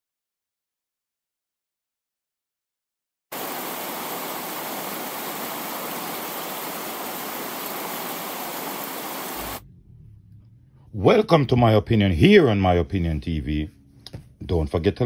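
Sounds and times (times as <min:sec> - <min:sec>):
static-like hiss: 0:03.3 - 0:09.6.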